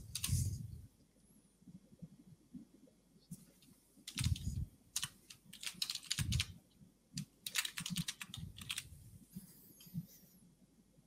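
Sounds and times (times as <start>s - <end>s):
typing on computer keyboard: 4.1s - 6.5s, 7.2s - 8.9s.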